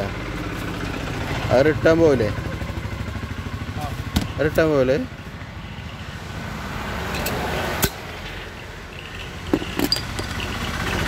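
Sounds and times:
bottle opener clicks and knocks: 0:09.0 - 0:10.6.

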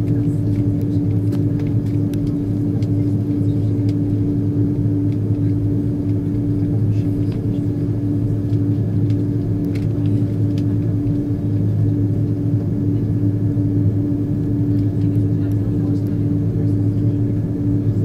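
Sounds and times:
airliner engines droning: 0:00.0 - 0:18.0.

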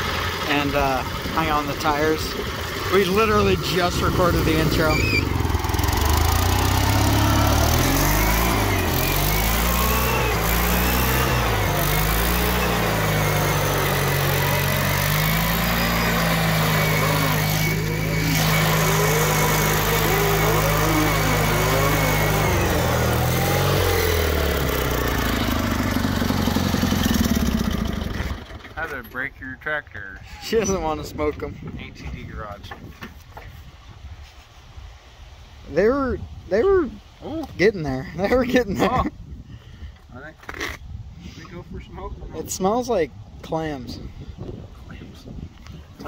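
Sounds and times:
tyres spinning on asphalt: 0:00.0 - 0:28.9
lawn tractor engine revving: 0:00.0 - 0:29.0.

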